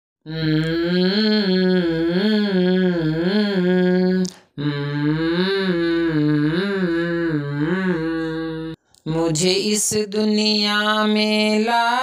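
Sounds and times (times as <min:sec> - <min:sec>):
person humming slow melody: 0:00.3 - 0:08.8.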